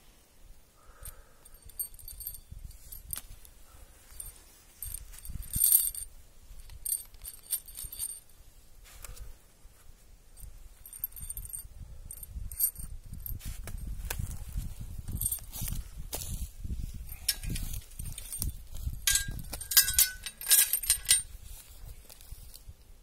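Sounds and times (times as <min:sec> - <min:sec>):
metal chain rattling: 0:00.9 - 0:08.4, 0:10.4 - 0:14.0, 0:14.9 - 0:15.8, 0:17.0 - 0:21.4.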